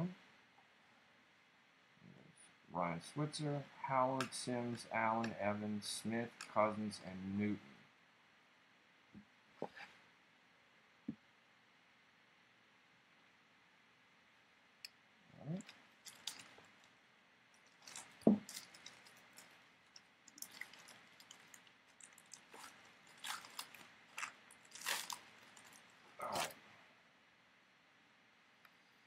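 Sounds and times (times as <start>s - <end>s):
foil wrapper crinkling: 15.6s - 16.9s, 17.6s - 26.6s.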